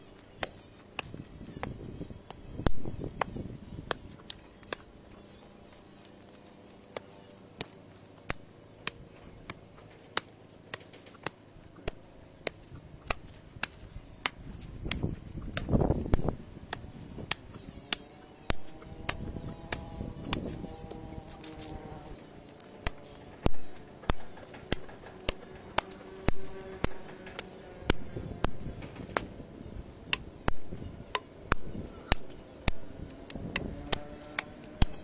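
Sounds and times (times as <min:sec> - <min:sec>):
digging bar striking earth: 0:06.9 - 0:29.3, 0:33.5 - 0:35.0.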